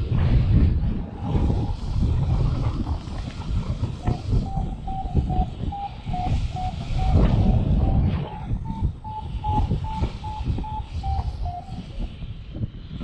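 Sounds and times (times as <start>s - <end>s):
wind buffeting microphone: 0.0s - 13.0s
variometer beeping short tones: 8.6s - 11.6s.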